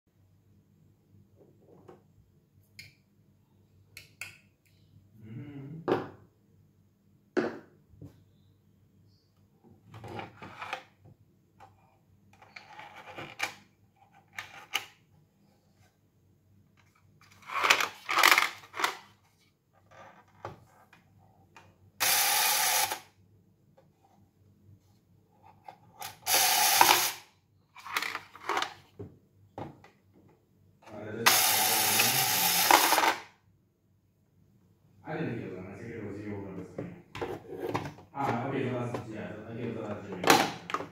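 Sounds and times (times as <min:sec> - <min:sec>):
small toy motor whirring: 0:22.0 - 0:23.1, 0:26.0 - 0:27.3, 0:31.3 - 0:33.2.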